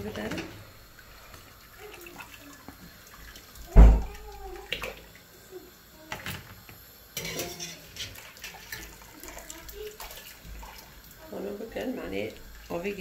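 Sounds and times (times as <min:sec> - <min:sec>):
heavy low thud: 0:03.8 - 0:04.1.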